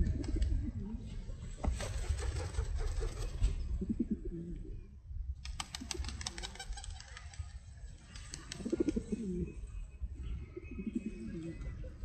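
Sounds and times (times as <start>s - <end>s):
pigeons cooing: 8.5s - 9.5s.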